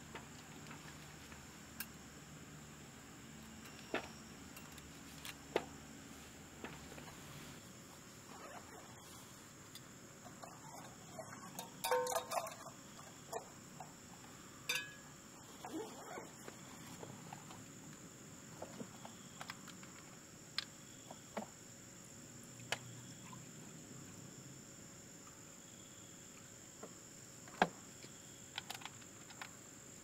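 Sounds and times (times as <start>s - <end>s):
crickets chirping: 0.0s - 30.0s
metallic ring: 11.5s - 12.7s, 14.7s - 15.2s
cookware clinking on wooden table: 11.8s - 12.6s.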